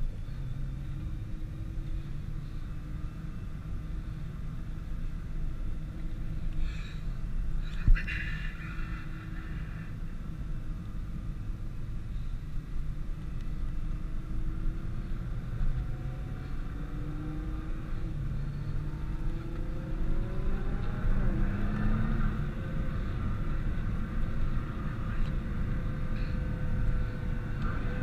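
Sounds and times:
car engine and road rumble: 0.0 - 28.0.

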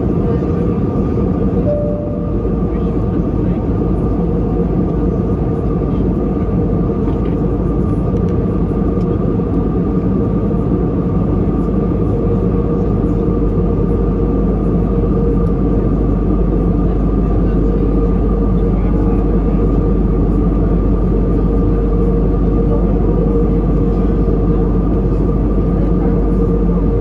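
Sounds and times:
airplane cabin rumble: 0.0 - 27.0
constant engine whine: 0.0 - 27.0.

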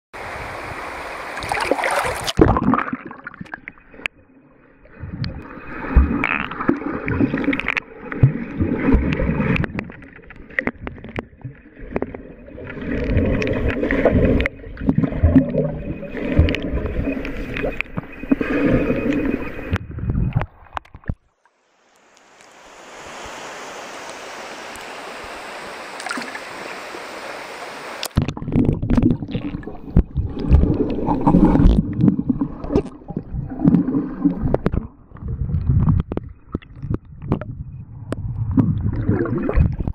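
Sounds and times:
muffled underwater gurgling: 4.8 - 21.1, 28.2 - 39.9
water ambience hiss: 12.7 - 20.4, 21.4 - 28.2.

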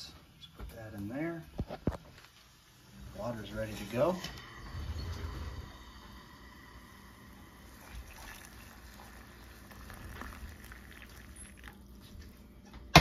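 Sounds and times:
water pouring into a mug: 5.7 - 12.2.

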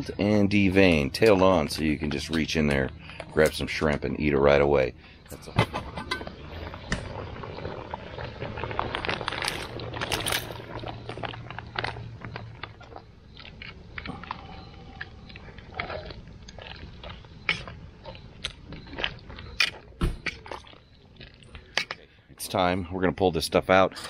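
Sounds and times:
plastic bag crinkling: 6.4 - 19.8.

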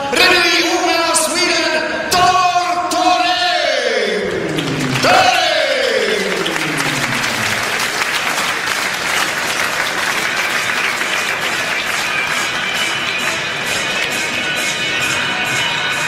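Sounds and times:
crowd cheering and applauding: 4.2 - 16.0.

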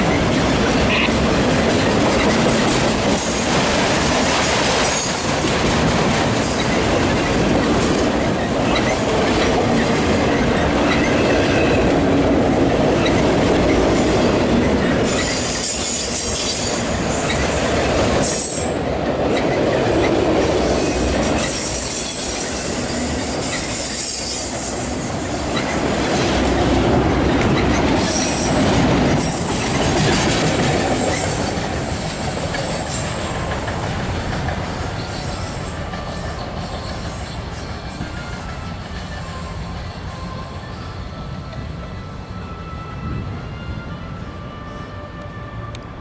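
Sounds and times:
freight train wheels rumbling on rail: 0.0 - 46.0
high wheel squeal: 8.1 - 11.9, 14.6 - 43.2.

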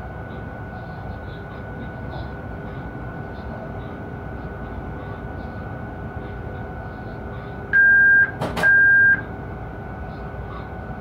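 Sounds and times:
locomotive cab running noise: 0.0 - 11.0
electronic warning beep: 7.8 - 9.2.

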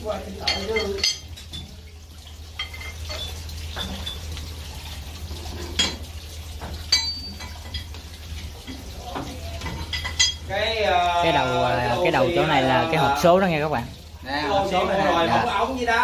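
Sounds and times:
hand tools clinking on metal: 0.4 - 1.7.

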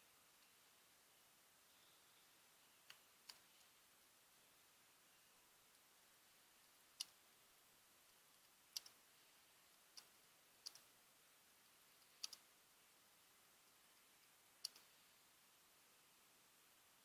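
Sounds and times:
computer keyboard clicks: 12.2 - 12.4.

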